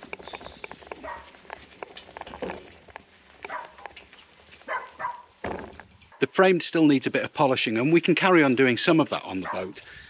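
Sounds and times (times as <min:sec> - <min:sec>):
dog barking: 0:01.0 - 0:01.3, 0:03.4 - 0:03.9, 0:04.7 - 0:05.3, 0:09.4 - 0:09.8.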